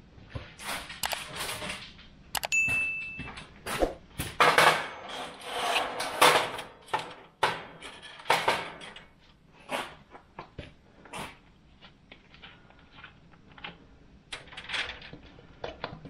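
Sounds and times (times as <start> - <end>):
short high ring: 2.5 - 3.4.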